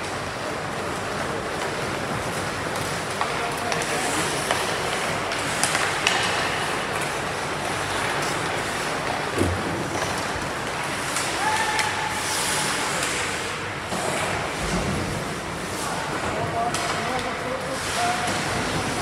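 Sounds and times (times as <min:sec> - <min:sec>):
hockey sticks and puck clacking: 0:01.4 - 0:09.2, 0:10.0 - 0:14.4, 0:16.7 - 0:19.0
thud: 0:09.4 - 0:10.5.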